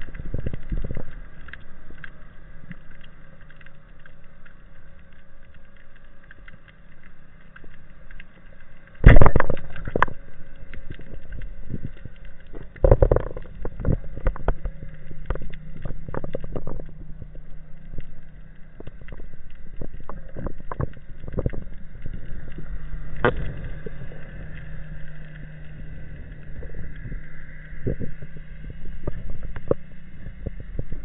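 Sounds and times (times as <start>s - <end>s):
steady low hum: 0.0s - 31.0s
speargun firing underwater: 9.0s - 9.7s.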